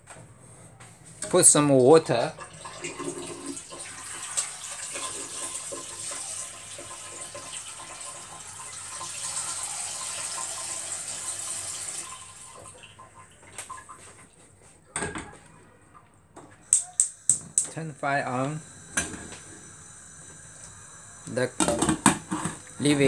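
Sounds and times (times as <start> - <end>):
tap water running into pot: 2.0 - 13.8, 17.0 - 23.0.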